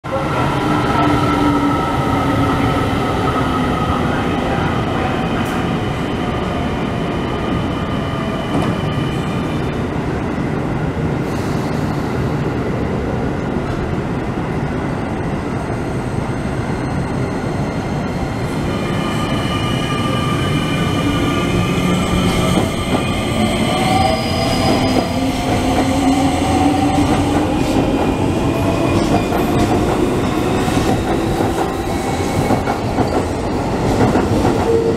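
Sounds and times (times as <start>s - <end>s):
train wheels on rails: 18.8s - 34.9s.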